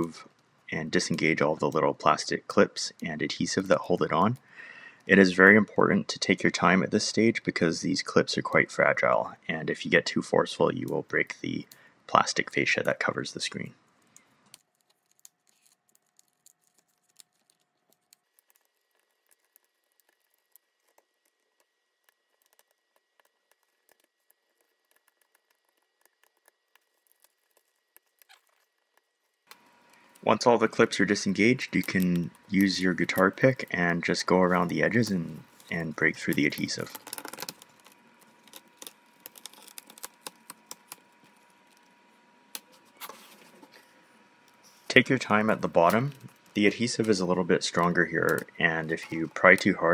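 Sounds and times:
small plastic clicks and crackles: 13.9s - 30.4s, 34.5s - 42.8s.

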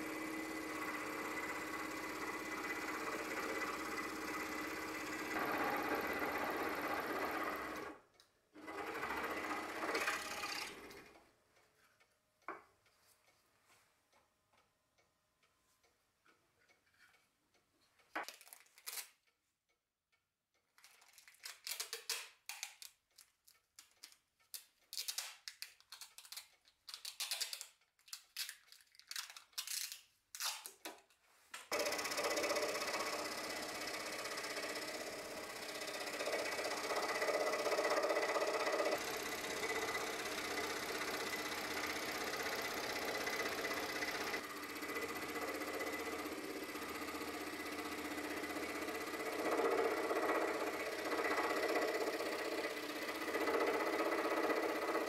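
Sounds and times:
scroll saw cutting wood: 0.0s - 8.0s, 8.6s - 11.1s, 31.7s - 55.0s
packing tape ripping off roll: 24.9s - 30.8s.

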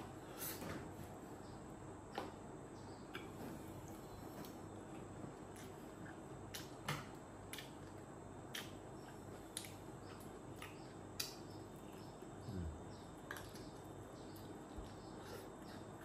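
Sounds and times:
low room hum: 0.0s - 16.0s
mouth clicks and smacks eating: 3.1s - 12.4s, 13.0s - 16.0s.

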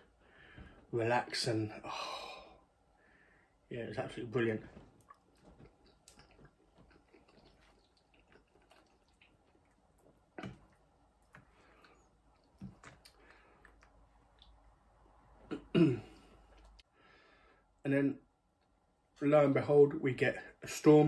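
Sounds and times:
chewing: 4.9s - 14.6s.

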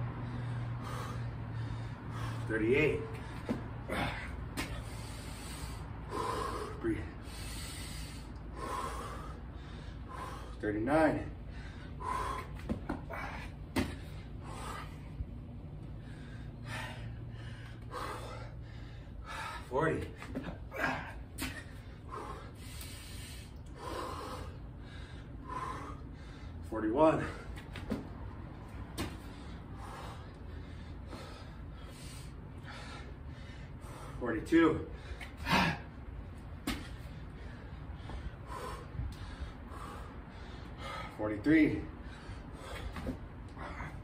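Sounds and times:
person gasping breaths: 0.2s - 10.6s, 11.3s - 15.2s, 16.0s - 19.7s, 20.6s - 27.6s.

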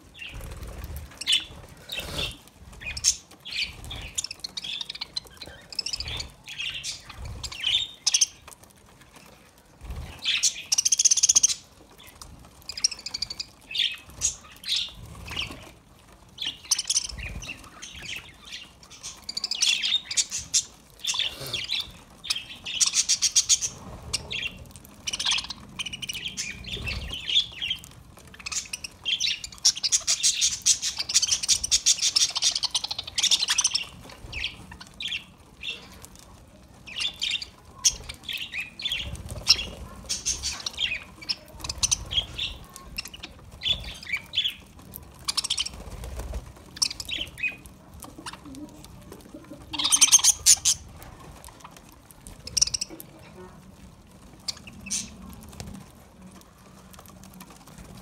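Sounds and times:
budgerigars chattering: 49.8s - 50.8s.

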